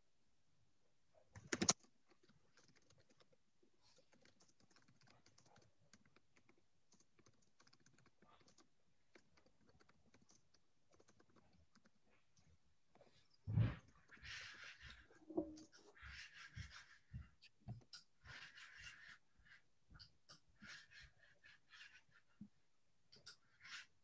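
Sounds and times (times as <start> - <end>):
keyboard typing: 1.4 - 12.0.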